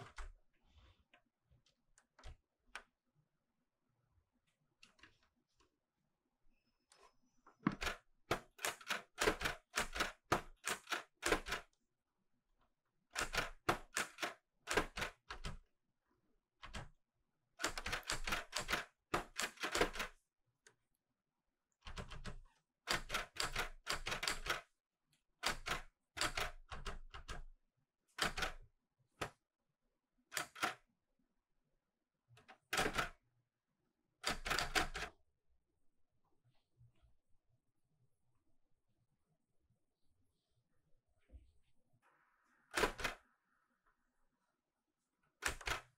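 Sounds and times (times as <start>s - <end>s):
typewriter typing: 7.7s - 11.7s, 13.2s - 15.6s, 17.6s - 20.2s, 21.9s - 24.7s, 25.4s - 27.4s, 28.2s - 28.6s, 30.3s - 30.8s, 32.6s - 33.2s, 34.2s - 35.1s, 42.7s - 43.2s, 45.4s - 45.9s.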